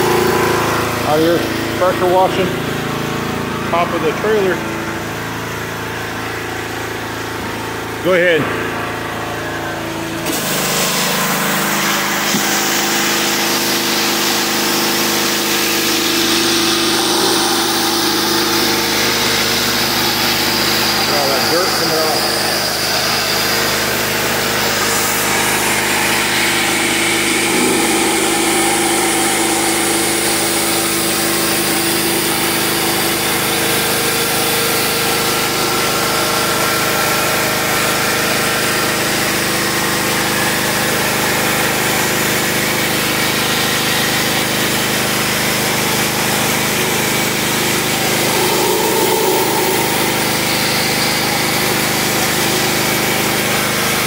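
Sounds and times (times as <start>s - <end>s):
pressure washer spray hissing: 47.2s - 52.7s.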